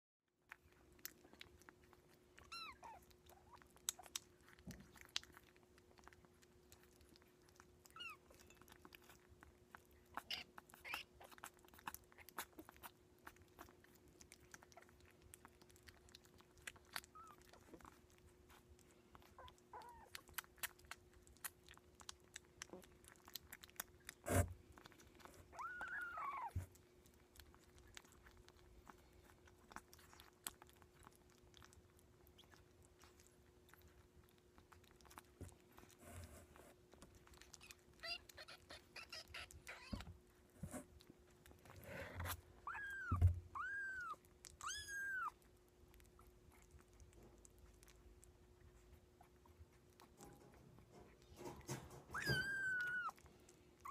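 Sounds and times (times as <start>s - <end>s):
kittens chewing food: 0.3s - 53.9s
kitten mewing: 37.7s - 40.1s, 41.8s - 45.4s, 52.0s - 53.2s.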